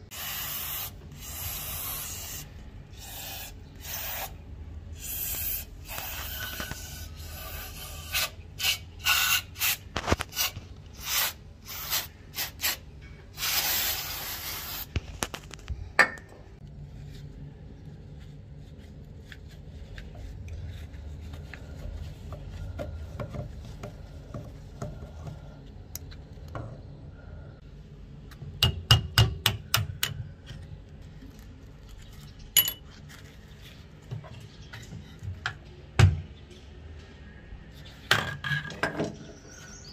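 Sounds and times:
aerosol spray can hissing: 0.1s - 2.4s.

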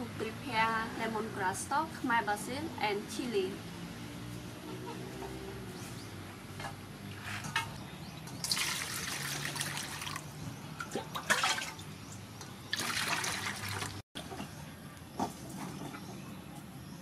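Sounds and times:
water splashing into steel bowl: 8.4s - 10.2s, 10.8s - 11.9s, 12.7s - 14.0s.

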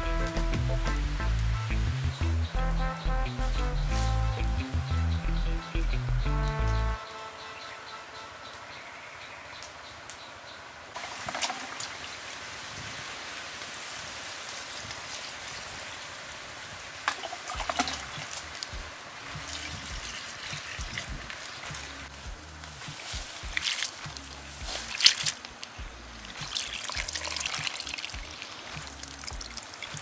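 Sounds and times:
water trickling into plastic basin: 17.0s - 18.7s, 19.3s - 21.7s, 23.3s - 24.0s, 24.7s - 30.0s.

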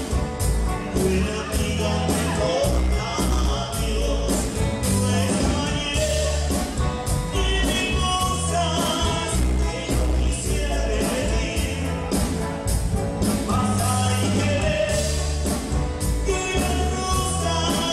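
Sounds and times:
bass: 0.0s - 17.9s
drums: 0.0s - 17.9s
keyboard: 0.0s - 17.9s
person singing: 0.7s - 12.4s, 13.4s - 15.4s, 16.2s - 17.9s.

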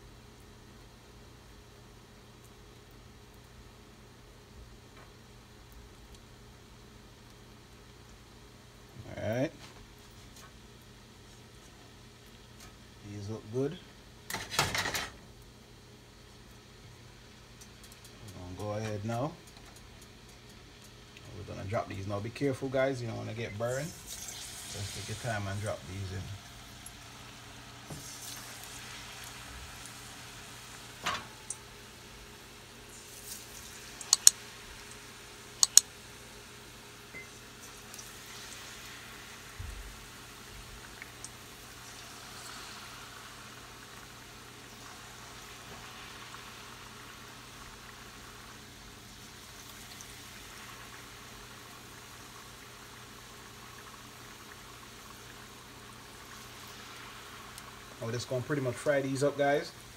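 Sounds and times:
hot oil bubbling: 9.5s - 59.9s
sharp clicks: 34.0s - 34.4s, 35.6s - 35.9s.

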